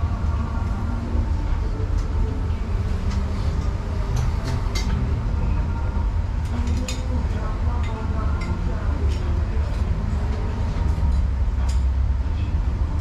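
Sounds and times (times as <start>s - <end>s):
low rumble: 0.0s - 13.0s.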